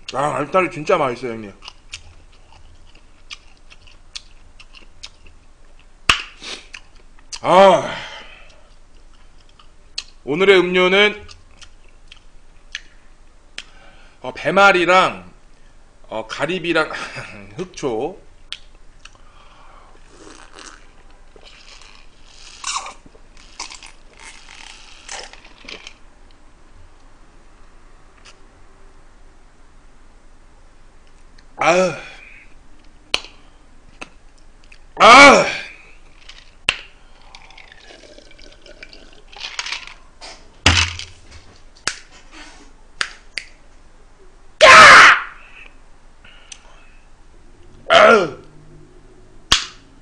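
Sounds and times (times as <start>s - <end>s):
person's strained vocal outburst: 7.6s - 8.3s, 35.0s - 35.8s, 47.8s - 48.5s
person gulping a drink: 20.1s - 26.0s, 37.1s - 40.0s
drinking noises: 36.1s - 41.0s
ice cubes clinking in glass: 37.4s - 40.0s.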